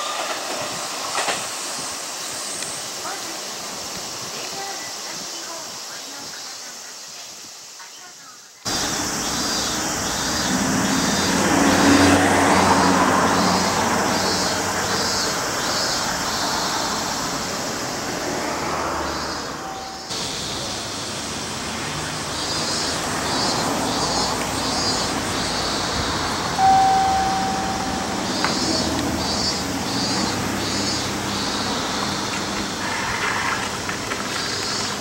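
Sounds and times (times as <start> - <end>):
vehicle passing: 8.7 - 34.4
steady beep: 26.6 - 29.6
rhythmic high chirping: 26.6 - 30.9.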